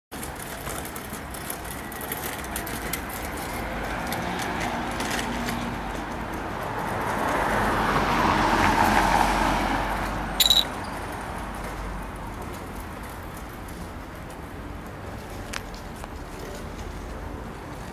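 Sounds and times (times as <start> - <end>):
car passing by: 6.7 - 10.4.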